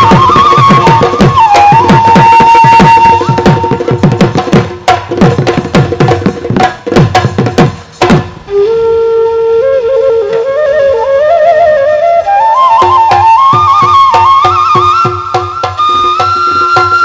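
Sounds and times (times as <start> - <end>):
bamboo flute melody: 0.0 - 5.9, 8.1 - 17.0
drums in fast rhythm: 0.0 - 8.5, 12.8 - 17.0.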